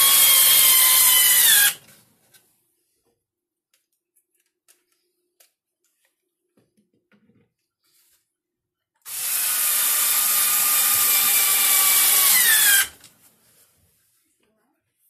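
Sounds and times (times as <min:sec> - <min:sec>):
cordless drill whining: 0:00.0 - 0:01.9, 0:09.0 - 0:13.1.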